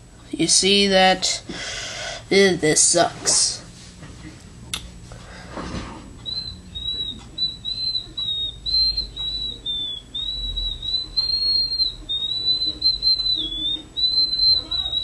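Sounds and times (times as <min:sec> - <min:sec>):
high whistling notes: 0:06.2 - 0:15.0.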